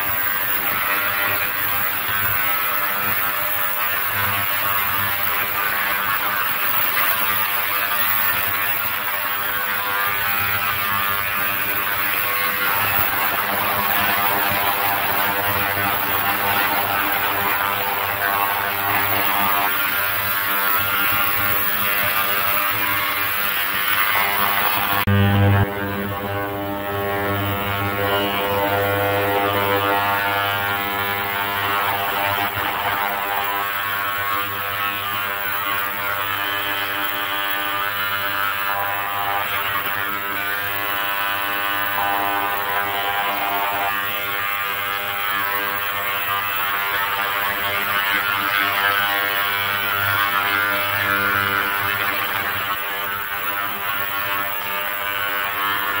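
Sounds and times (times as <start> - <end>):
ultrasonic cleaner buzzing: 0.0 - 56.0.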